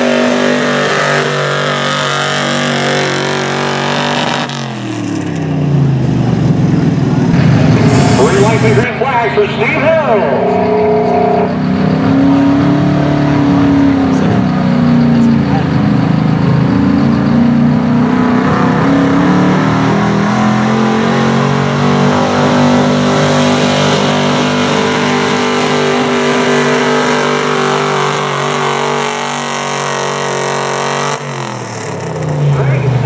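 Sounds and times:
pickup engine at full throttle: 0:00.0 - 0:33.0.

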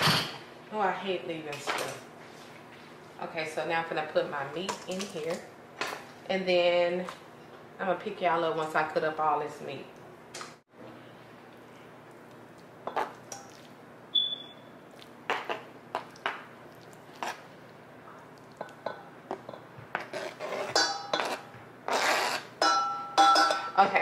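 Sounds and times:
kitchen utensils and dishes clinking: 0:18.6 - 0:21.5, 0:22.4 - 0:24.0
high ping: 0:22.6 - 0:23.7.

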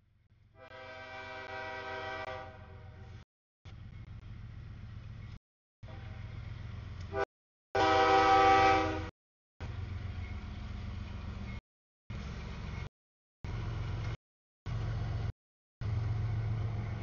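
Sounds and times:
train rumbling: 0:00.0 - 0:17.0
locomotive air horn: 0:00.6 - 0:03.0, 0:07.1 - 0:09.1.

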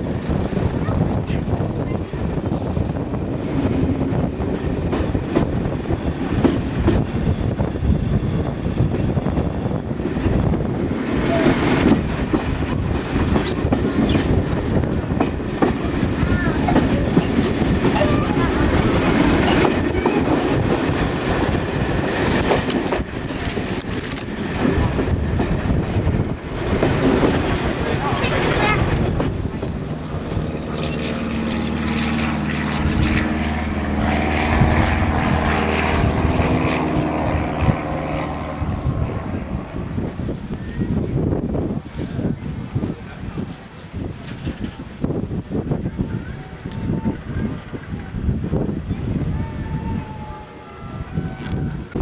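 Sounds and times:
railcar rumbling: 0:00.0 - 0:52.0
wheels clicking on track: 0:04.3 - 0:31.0.

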